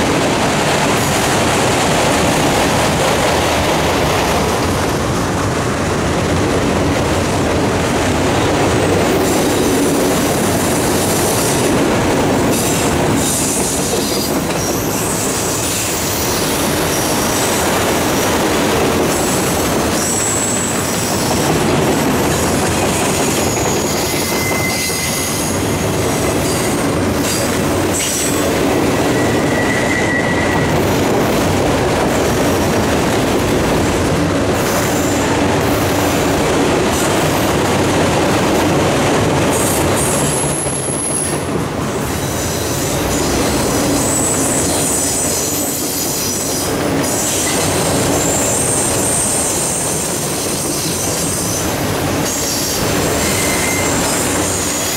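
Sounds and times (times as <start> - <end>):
train wheels on rail: 0.0 - 54.9
high wheel squeals: 23.4 - 25.6, 29.0 - 30.8, 52.3 - 54.9.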